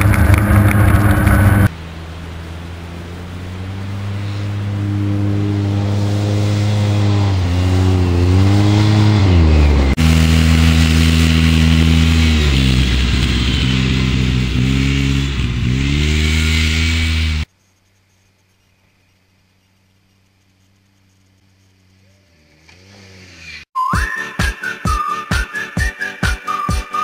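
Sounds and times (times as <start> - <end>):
engine revving: 0.0 - 17.5, 21.8 - 23.7.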